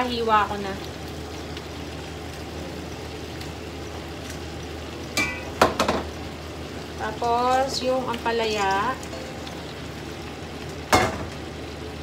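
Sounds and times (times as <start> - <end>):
vegetables sizzling in a wok: 0.0 - 12.0.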